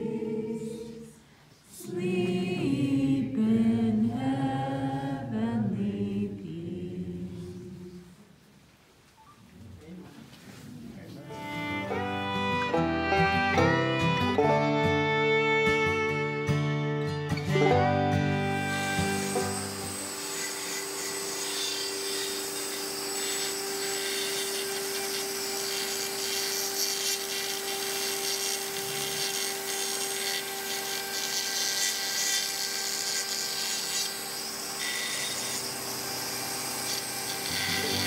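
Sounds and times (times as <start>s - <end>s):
carving bit grinding hiss: 18.5s - 38.0s
rotary tool motor hum: 18.5s - 38.0s.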